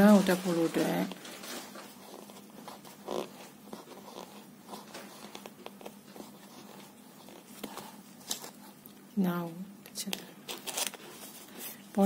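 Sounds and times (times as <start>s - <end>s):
hands brushing over paper: 0.0s - 8.8s
paper rustle: 0.0s - 8.8s, 10.1s - 11.8s.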